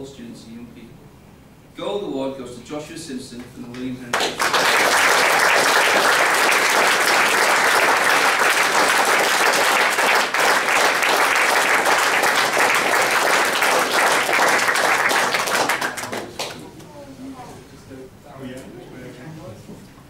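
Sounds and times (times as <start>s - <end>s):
audience applauding: 4.1s - 16.6s.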